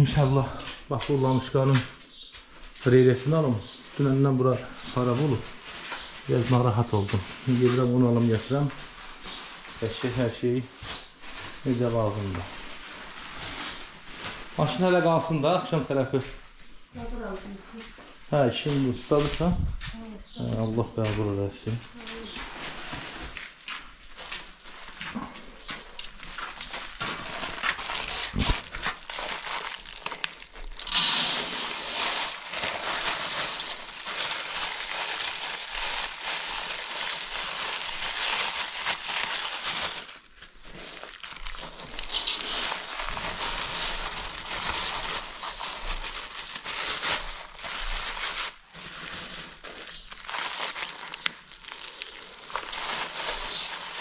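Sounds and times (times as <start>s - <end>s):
plastic bags crinkling: 2.6s - 16.4s, 20.6s - 54.0s.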